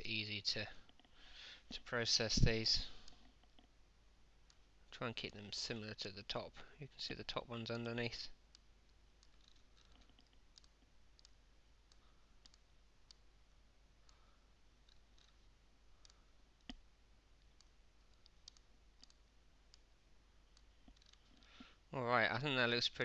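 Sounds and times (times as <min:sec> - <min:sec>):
faint low hum: 0:00.0 - 0:23.0
computer mouse clicks: 0:08.5 - 0:13.2, 0:14.8 - 0:15.4, 0:17.4 - 0:19.9, 0:20.5 - 0:21.5.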